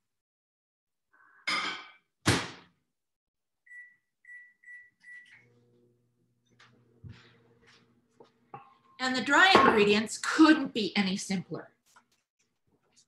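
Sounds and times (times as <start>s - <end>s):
microwave oven humming: 5.1s - 7.7s.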